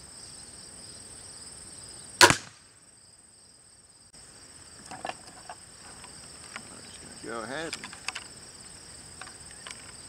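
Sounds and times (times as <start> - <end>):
insect chirring: 0.0 - 10.0
crossbow bolt striking shield: 2.2 - 2.6.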